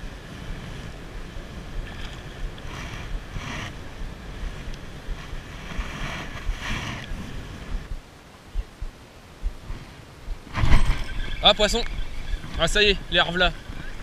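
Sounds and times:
wind buffeting microphone: 0.0 - 14.0
low thumps: 3.1 - 12.6.

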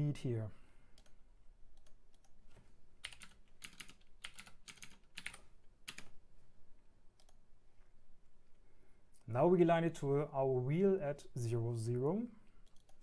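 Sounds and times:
computer keyboard typing: 1.8 - 2.4, 3.0 - 6.2, 12.6 - 13.0.

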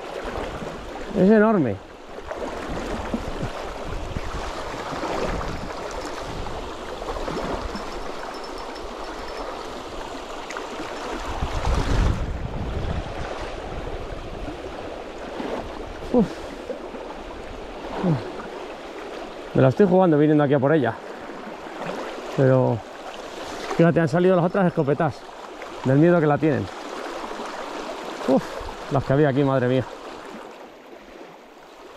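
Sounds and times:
river running over stones: 0.0 - 12.6, 13.2 - 31.9.

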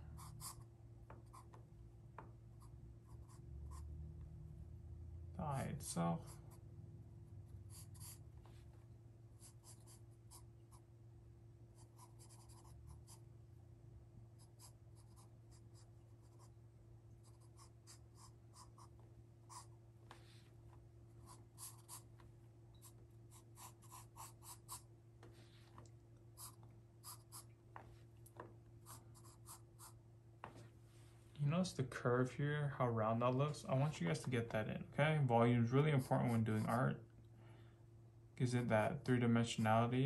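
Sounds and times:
steady low hum: 0.0 - 40.0
pencil scratching on paper: 7.7 - 8.2, 11.8 - 13.2, 14.4 - 16.5, 21.2 - 22.1, 22.8 - 24.9, 26.4 - 27.5, 28.8 - 30.0, 35.7 - 37.0.

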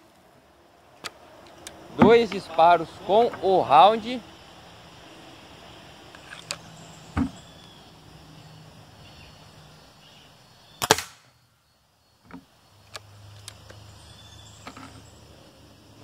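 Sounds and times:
light clicks of rifle barrel: 1.0 - 1.8, 6.1 - 6.6, 12.8 - 13.8
air rifle shot: 10.8 - 11.3
rifle barrel snapped shut thud: 10.8 - 11.3.

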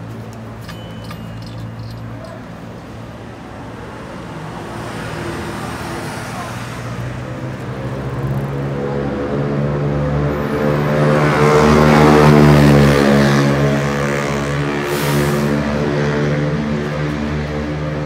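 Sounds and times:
vehicle passing by: 4.2 - 18.0.

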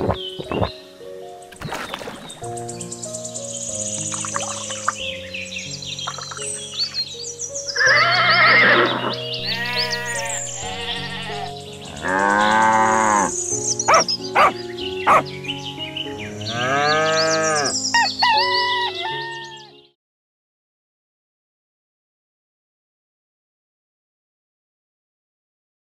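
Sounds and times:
background music: 0.0 - 20.0
birds chirping: 0.0 - 20.0
farm animals bleating: 7.8 - 14.5, 16.3 - 19.8.

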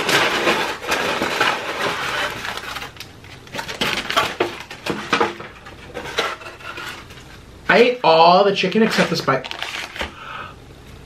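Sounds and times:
paper wrappers crinkling: 0.0 - 7.4, 8.8 - 10.2.

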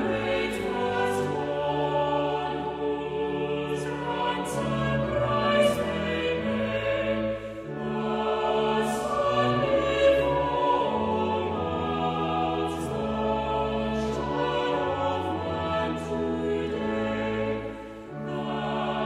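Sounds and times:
choir singing a hymn: 0.0 - 19.0.

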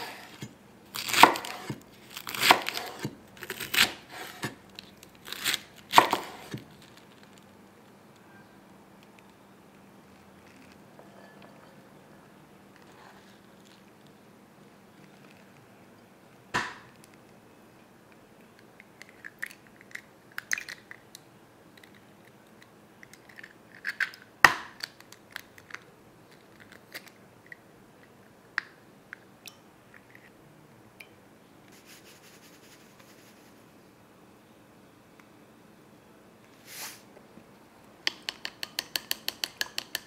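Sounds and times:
eggs cracking: 18.5 - 30.3, 38.0 - 40.0
short rustle: 36.6 - 37.1.

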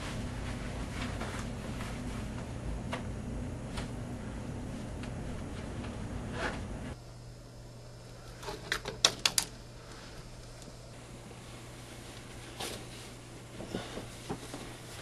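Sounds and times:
low hum of room noise: 0.0 - 15.0.

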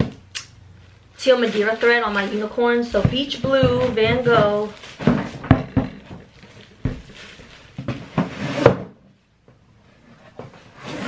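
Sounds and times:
plastic wrap rustling: 0.0 - 8.8
cardboard tubes knocking: 2.8 - 9.6.

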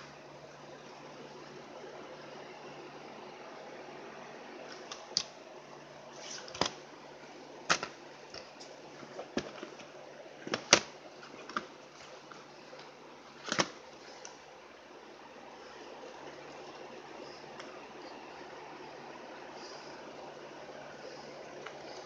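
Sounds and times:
faint hiss and low hum: 0.0 - 22.0
cd cases clicking and knocking: 6.4 - 6.8, 7.6 - 14.4.

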